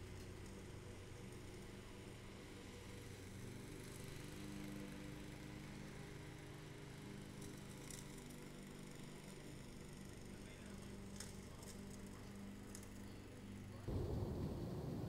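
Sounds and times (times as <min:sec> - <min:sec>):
low engine hum: 0:11.8 - 0:15.0.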